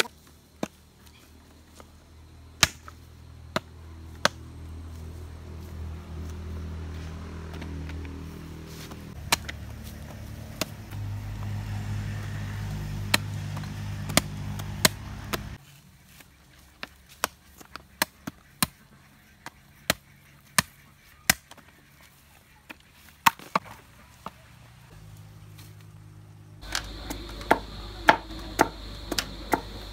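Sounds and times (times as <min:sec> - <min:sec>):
knife chopping coconut: 0:13.0 - 0:15.6, 0:26.7 - 0:29.7.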